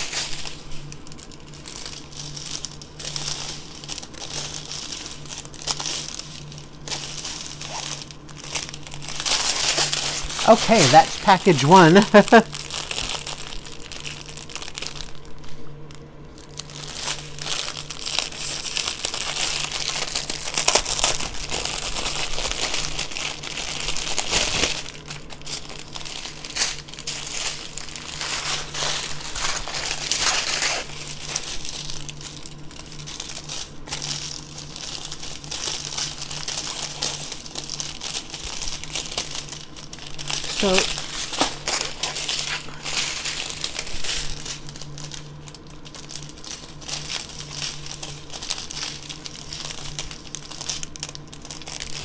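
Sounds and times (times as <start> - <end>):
plastic bags crinkling: 0.0 - 52.0.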